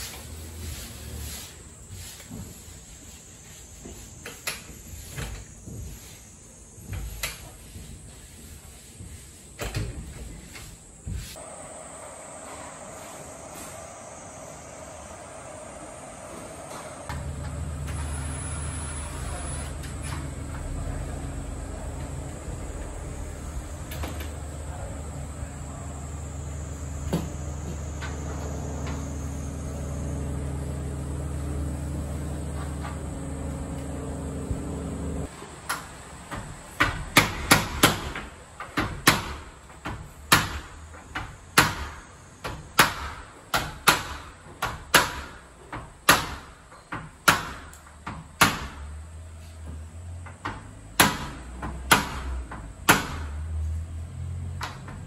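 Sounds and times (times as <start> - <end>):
low machine hum: 11.4 - 35.3.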